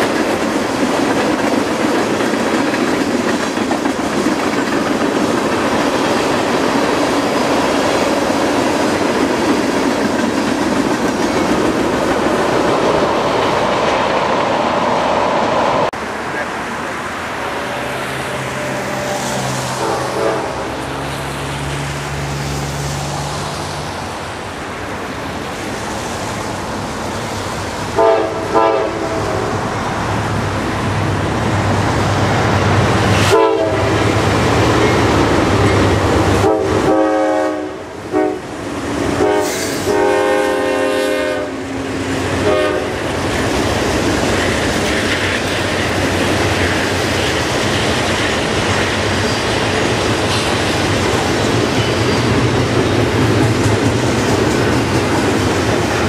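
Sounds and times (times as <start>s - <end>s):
train wheels and cars rattling: 0.0s - 56.0s
diesel engines rumbling: 14.8s - 37.1s
train air horn blasts: 17.4s - 21.1s, 28.0s - 29.6s, 33.1s - 34.1s, 36.4s - 38.4s, 39.2s - 43.0s.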